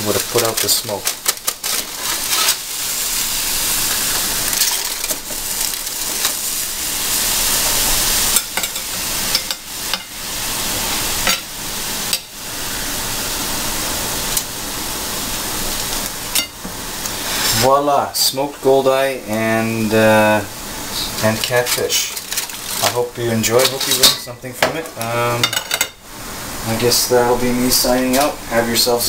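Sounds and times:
juices sizzling: 0.0 - 29.0
tongs clinking on wire rack: 8.4 - 10.1, 23.6 - 24.3.

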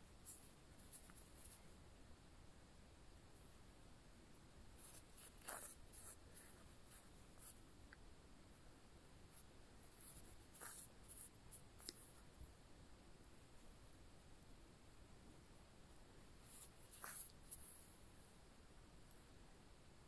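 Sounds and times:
yarn drawn through fabric: 4.7 - 7.6, 9.8 - 12.2, 16.4 - 17.9.

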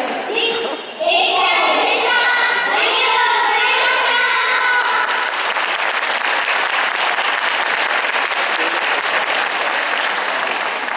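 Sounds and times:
girls' vocal group singing: 0.0 - 5.2
audience applause: 5.1 - 10.9.

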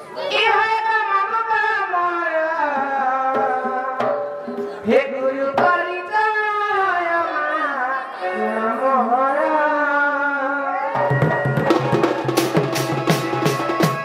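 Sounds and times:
person singing into a microphone: 0.0 - 11.8
sharp drum strokes: 11.0 - 14.0.

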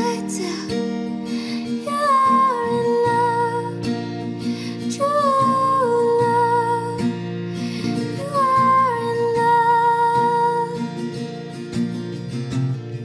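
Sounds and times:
pop backing with guitar: 0.0 - 13.0.

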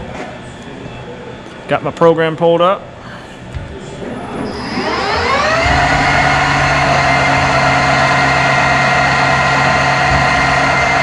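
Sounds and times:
lathe machine whine: 3.9 - 11.0.

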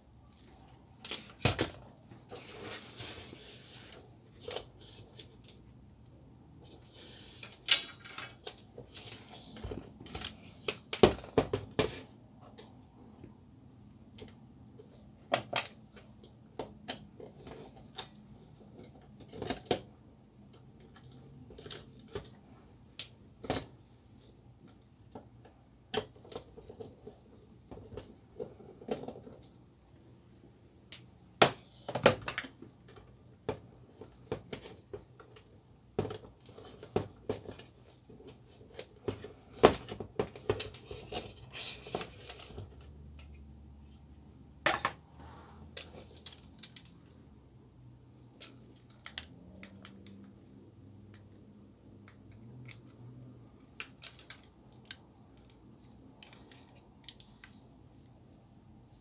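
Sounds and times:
plastic and metal parts clicking: 48.3 - 50.3.

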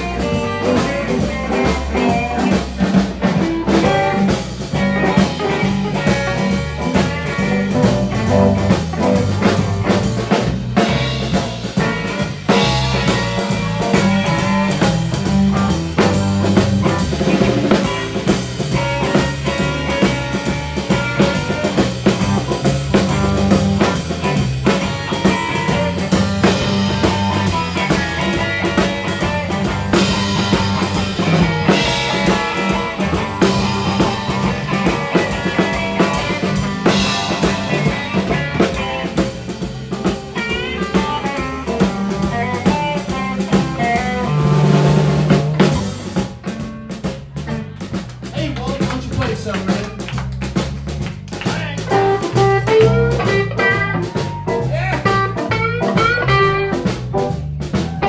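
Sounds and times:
drum kit: 0.0 - 58.0
electric guitar: 0.0 - 58.0.

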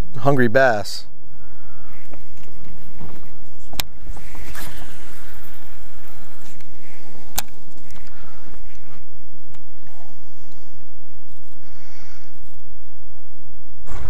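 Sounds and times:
sharp clicks: 7.3 - 8.2.

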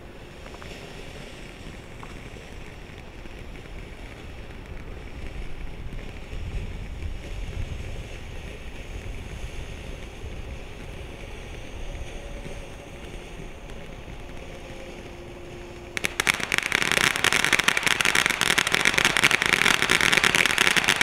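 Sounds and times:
firework fountain hissing: 0.0 - 21.0
wind rumble on microphone: 0.0 - 21.0.

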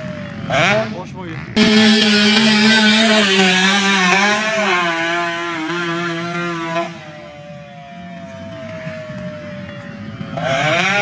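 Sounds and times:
distant dirt bike engine: 0.0 - 11.0
dirt bike engine revving: 0.5 - 7.2, 10.4 - 11.0.

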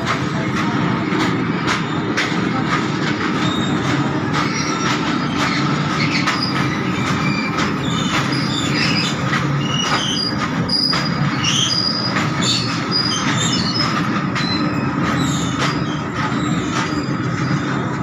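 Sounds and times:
train wheels rumbling on rails: 0.0 - 18.0
wheels clacking: 0.0 - 18.0
high-pitched wheel squeals: 4.4 - 17.9.

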